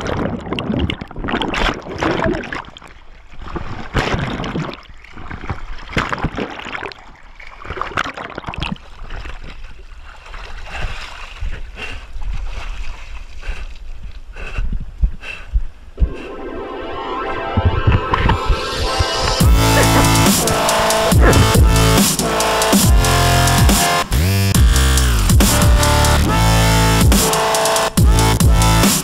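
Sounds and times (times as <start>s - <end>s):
water sloshing and splashing: 0.0s - 14.3s, 19.4s - 22.0s.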